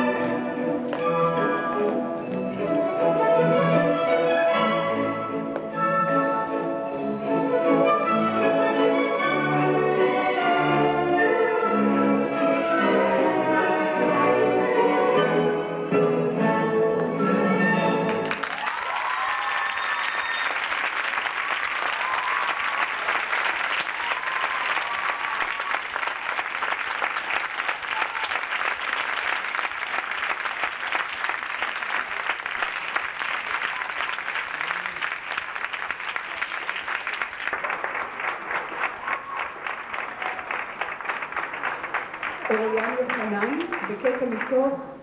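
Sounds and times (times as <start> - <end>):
audience applauding: 18.0 - 44.6
shouts from audience: 18.5 - 20.6, 21.9 - 22.8, 23.9 - 25.8, 27.8 - 28.4.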